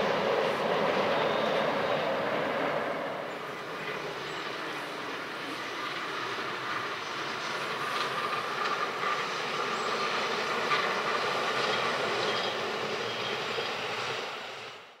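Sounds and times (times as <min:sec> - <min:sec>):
train wheels on rails: 0:00.0 - 0:15.0
faint rail clicks: 0:07.5 - 0:09.2.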